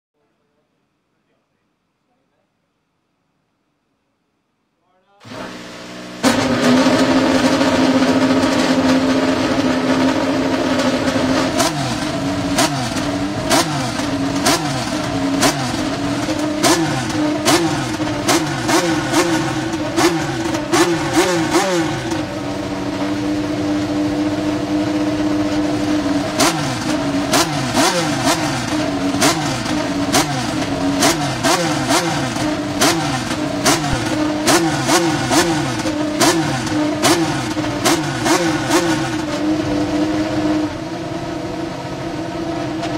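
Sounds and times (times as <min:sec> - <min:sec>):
racing car engine revving: 0:05.2 - 0:42.9
engine cracks: 0:26.3 - 0:39.4.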